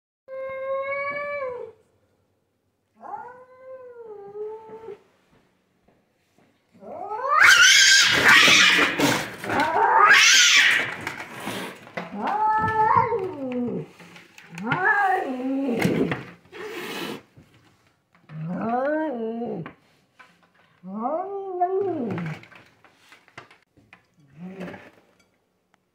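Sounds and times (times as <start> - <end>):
cats yowling and screeching: 0.3 - 1.8, 6.8 - 17.2.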